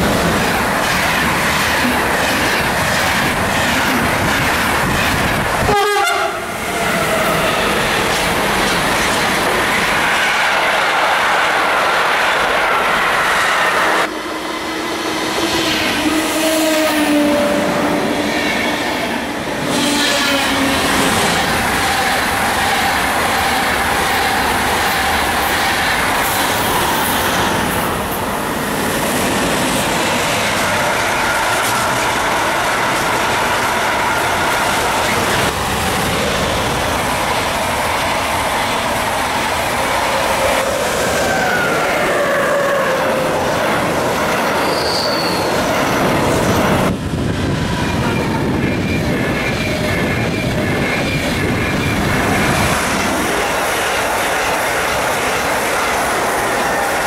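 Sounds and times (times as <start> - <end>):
trains passing at speed: 0.0 - 57.0
train horn tone: 5.7 - 7.4, 14.2 - 18.8, 19.6 - 21.2.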